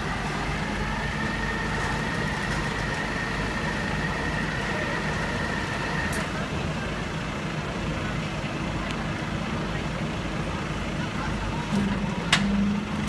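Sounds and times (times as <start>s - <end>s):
truck engine running: 0.0s - 13.0s
high-pitched whine of loading gear: 0.6s - 6.4s.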